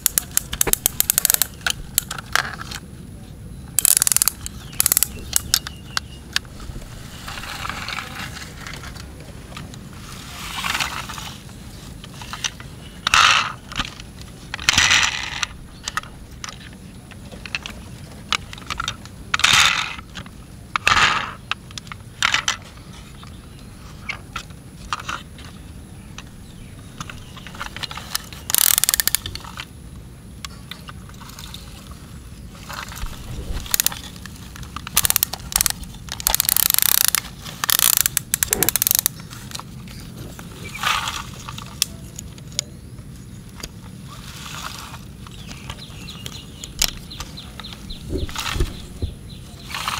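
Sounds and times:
plastic toy ratcheting clicks: 0.0s - 2.8s, 3.8s - 5.8s, 27.0s - 29.7s, 33.0s - 39.2s.

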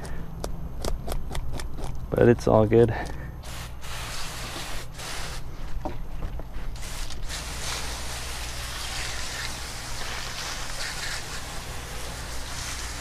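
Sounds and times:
hose nozzle spraying water: 6.8s - 13.0s.

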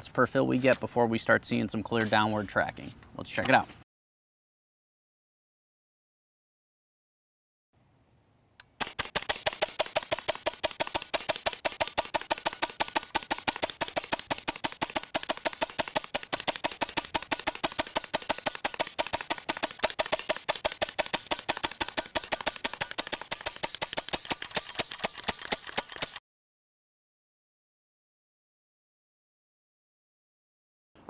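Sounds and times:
air rifle firing rapid shots: 8.8s - 26.2s.

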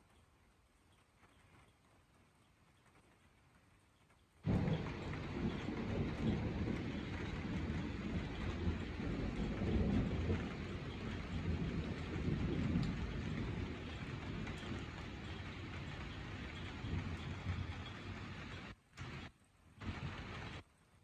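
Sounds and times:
steady rain: 0.0s - 21.0s
distant thunder rumbling: 4.4s - 20.6s.

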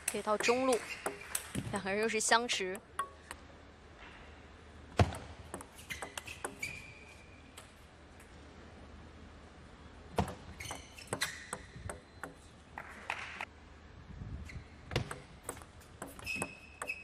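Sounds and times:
short high squeaks: 5.7s - 7.4s, 10.6s - 11.7s, 16.1s - 17.0s
table tennis ball clicking: 15.0s - 17.0s.

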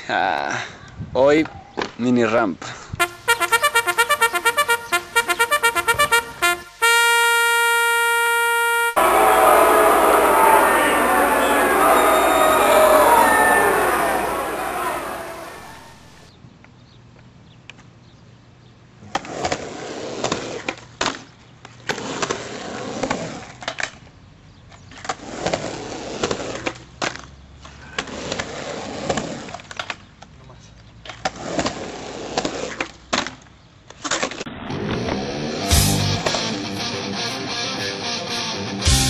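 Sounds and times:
skateboard wheels rolling on concrete: 18.9s - 35.6s.

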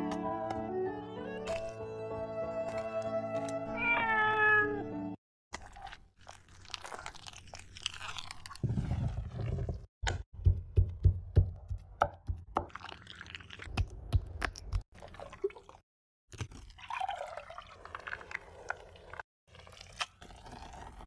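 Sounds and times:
minced meat squishing: 5.6s - 8.7s.

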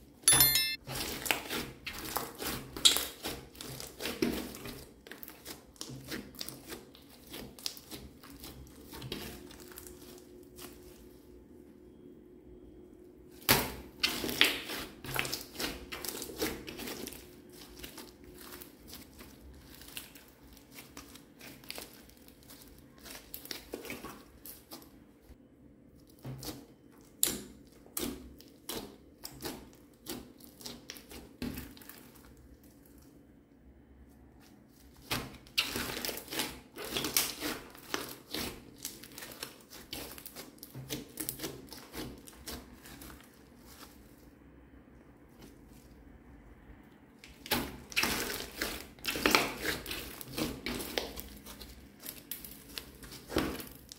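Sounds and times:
slime kneaded with sticky clicks: 35.0s - 43.8s, 47.2s - 53.9s.

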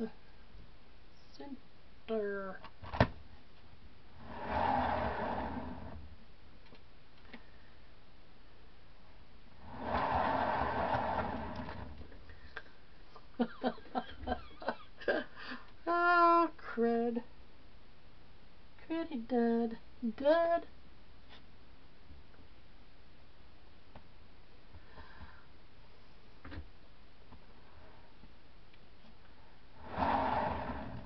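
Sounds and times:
canvas spinner whirring: 4.2s - 6.1s, 9.6s - 12.2s, 29.8s - 31.0s.

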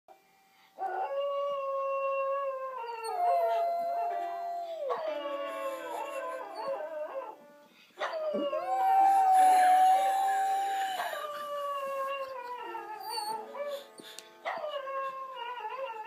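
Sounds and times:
small dog howling: 2.5s - 7.4s, 8.0s - 13.8s.

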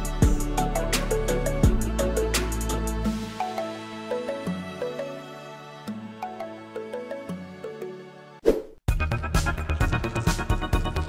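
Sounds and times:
gentle instrumental music: 0.0s - 8.4s.

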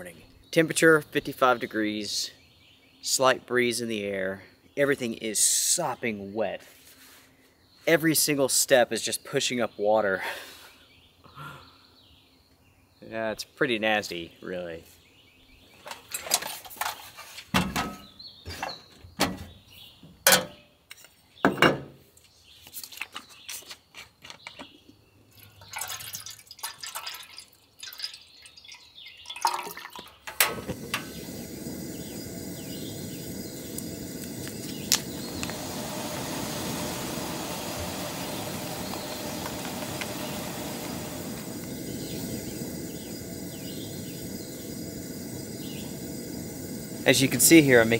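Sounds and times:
water pouring into kettle: 25.4s - 47.9s
gas burner hissing: 30.3s - 47.9s
stove igniter click: 30.4s - 47.2s.

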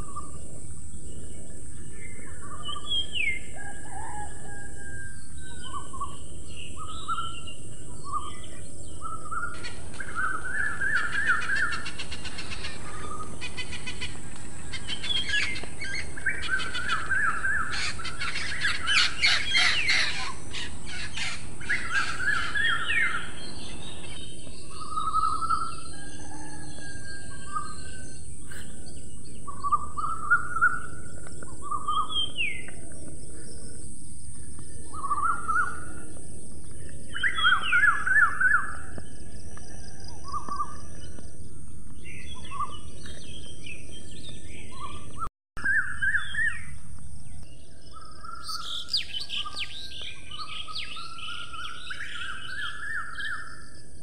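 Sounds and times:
birds chirping and whistling: 0.0s - 54.0s.

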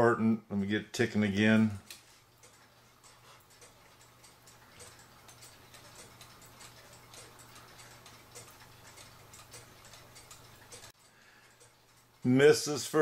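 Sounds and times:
clock ticking unevenly: 0.0s - 13.0s.

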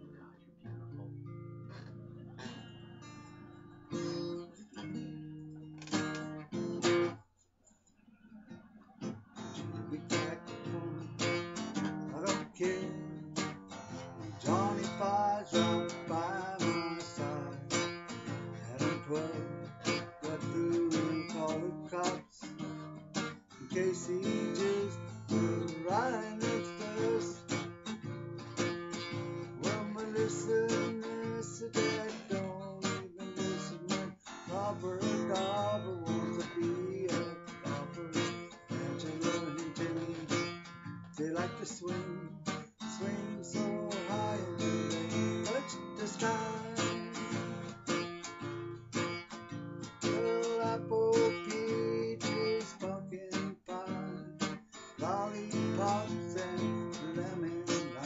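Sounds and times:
acoustic guitar strumming: 0.0s - 7.2s, 8.2s - 58.0s
man singing: 9.0s - 28.2s, 28.8s - 47.8s, 50.0s - 58.0s.

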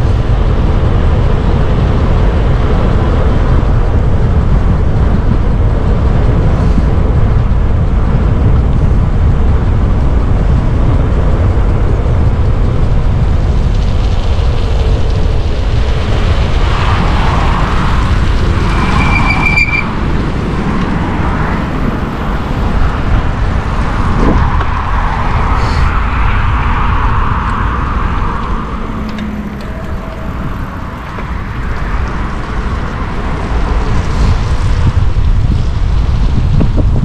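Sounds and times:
road and traffic noise: 0.0s - 37.0s
wind buffeting microphone: 0.0s - 37.0s.

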